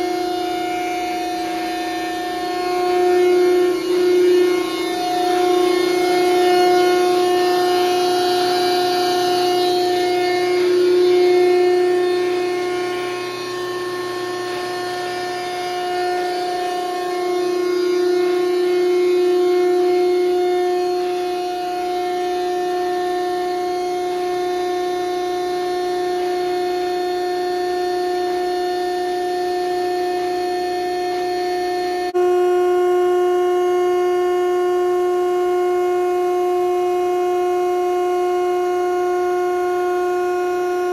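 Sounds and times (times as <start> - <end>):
hydraulic pump whining: 0.0 - 25.8.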